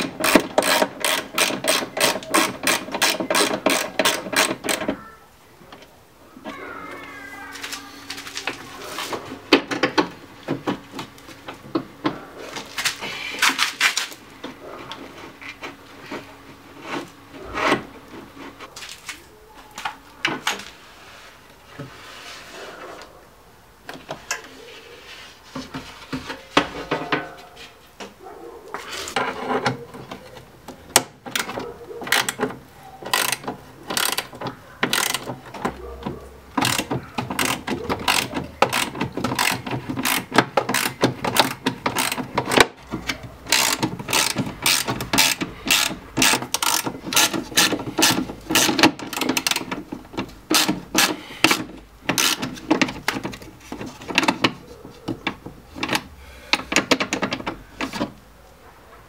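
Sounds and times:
ratchet wrench clicking: 0.0s - 4.8s, 33.1s - 34.3s, 34.9s - 35.3s, 36.6s - 42.6s, 43.5s - 49.6s, 50.5s - 52.4s
metal parts knocking: 0.0s - 5.0s, 30.9s - 35.8s, 36.5s - 58.1s.

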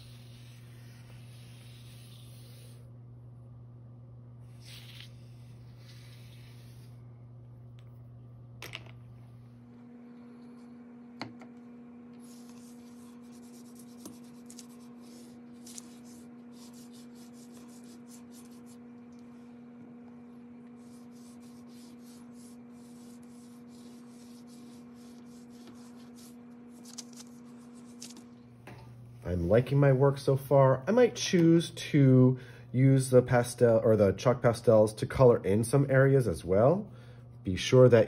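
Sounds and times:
chalk scratching on paper: 0.0s - 2.8s, 4.5s - 7.0s, 12.2s - 18.9s, 20.7s - 28.2s
steady low hum: 0.0s - 38.0s.

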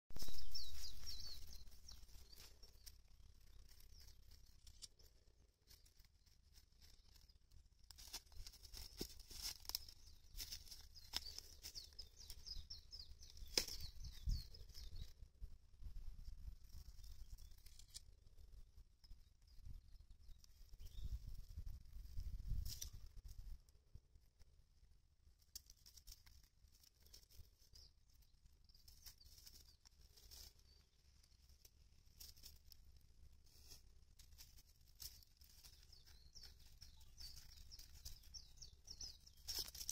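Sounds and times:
rabbits chewing cabbage leaf: 0.6s - 12.4s.

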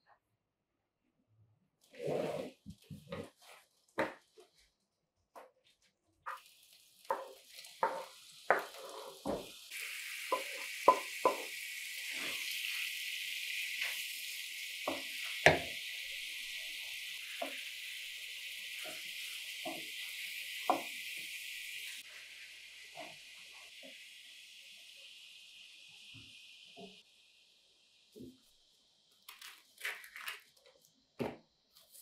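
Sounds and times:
spatula scraping a pan: 2.0s - 2.6s, 7.1s - 9.4s
chicken sizzling in a pan: 5.8s - 31.0s.

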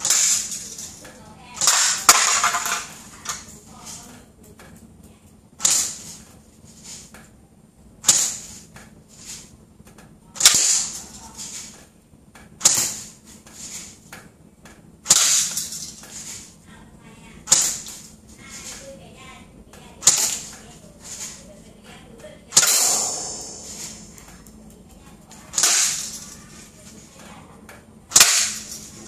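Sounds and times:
airsoft rifle shots: 0.0s - 0.8s, 1.6s - 3.4s, 5.6s - 6.2s, 8.0s - 8.6s, 10.4s - 11.6s, 12.6s - 13.7s, 15.0s - 15.7s, 17.4s - 18.1s, 20.0s - 21.3s, 22.5s - 24.4s, 25.5s - 26.4s, 28.1s - 28.8s.

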